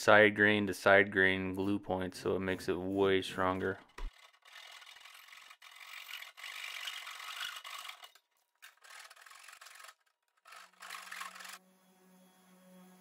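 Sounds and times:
hand saw rasping through wood: 0:04.1 - 0:08.1, 0:08.7 - 0:11.6.

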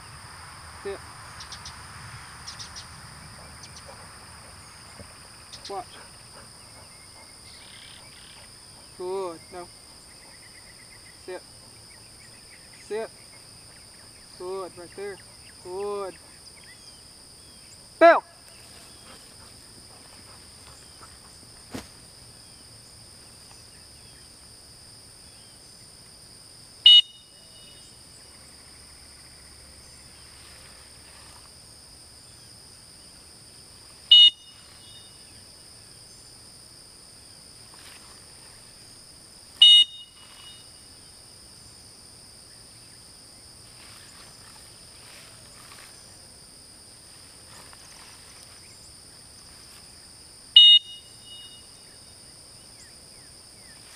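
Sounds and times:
dog whistle blasts: 0:26.9 - 0:27.7, 0:34.1 - 0:34.5, 0:39.6 - 0:40.6, 0:50.6 - 0:51.6.

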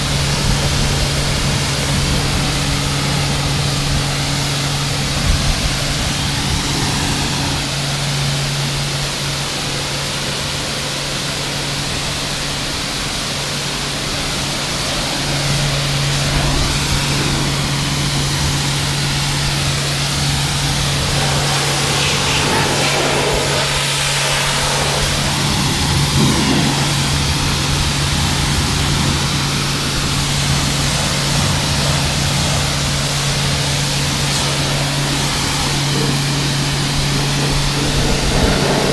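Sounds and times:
pressure washer motor hum: 0:00.0 - 0:38.9
water jet spraying hiss: 0:00.0 - 0:38.9.

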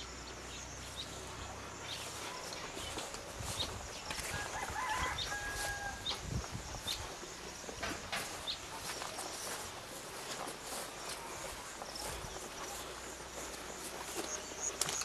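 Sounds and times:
rooster crowing: 0:04.2 - 0:06.2.

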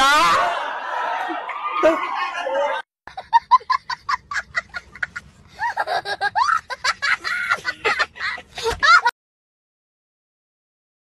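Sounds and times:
young child laughing: 0:03.2 - 0:09.1.

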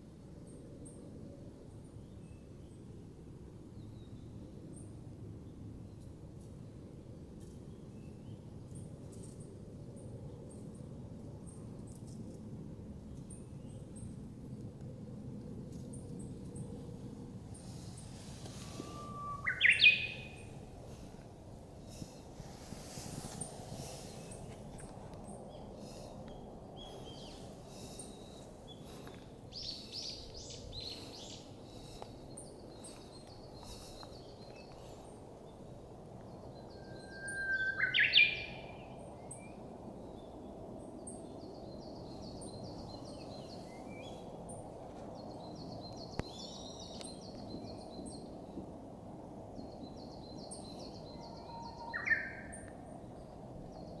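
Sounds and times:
low rush: 0:15.4 - 0:37.1
bush warbler singing: 0:15.8 - 0:40.4, 0:41.0 - 0:48.6, 0:49.5 - 0:54.0
small birds calling: 0:17.5 - 0:21.2, 0:23.2 - 0:35.2.

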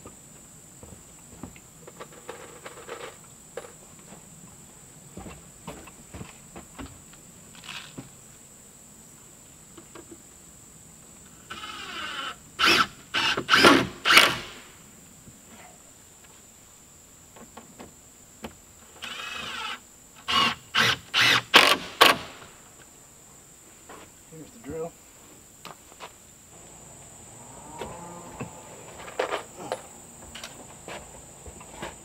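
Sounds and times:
screw driving bursts: 0:11.5 - 0:14.7, 0:19.0 - 0:22.2.

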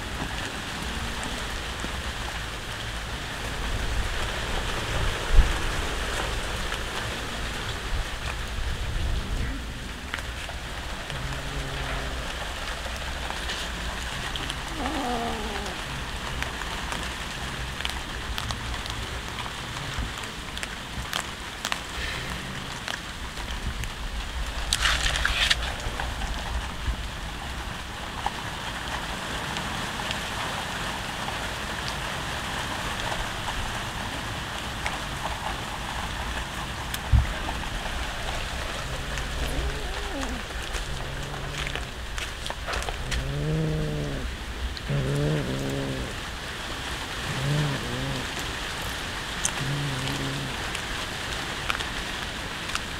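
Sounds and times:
cats chewing raw fish: 0:03.6 - 0:26.8, 0:34.7 - 0:52.9
cat meowing: 0:14.4 - 0:15.9, 0:38.8 - 0:42.0, 0:42.9 - 0:44.3, 0:47.3 - 0:48.4, 0:49.6 - 0:50.6.

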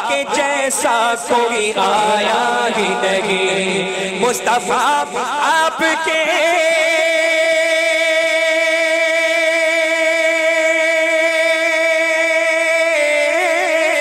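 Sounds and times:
man singing a long note: 0:00.0 - 0:14.0.

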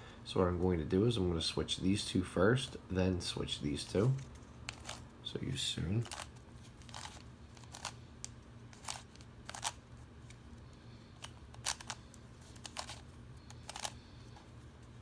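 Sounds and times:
plastic puzzle clacking: 0:11.2 - 0:14.0.

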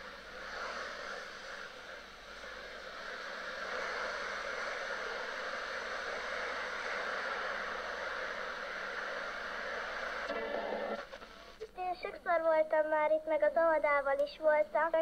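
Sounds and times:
radio static hiss: 0:00.0 - 0:15.0.

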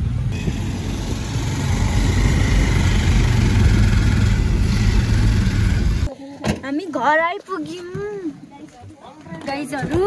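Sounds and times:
car engine and road noise: 0:00.0 - 0:06.1.

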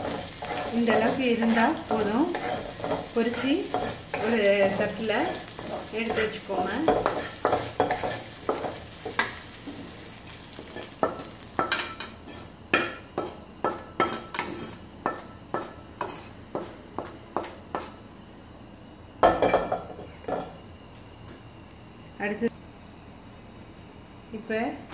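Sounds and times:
spatula scraping a steel pan: 0:00.0 - 0:09.9, 0:10.7 - 0:18.0
frying sizzle: 0:00.0 - 0:18.0, 0:19.2 - 0:21.1
spatula tapping a steel plate: 0:06.8 - 0:09.3.

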